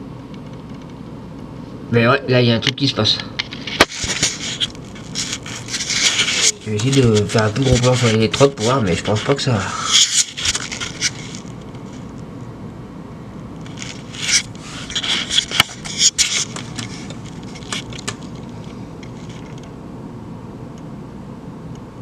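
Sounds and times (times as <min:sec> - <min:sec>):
camera handling scraping: 0:03.4 - 0:08.8, 0:09.9 - 0:12.1, 0:13.6 - 0:19.6.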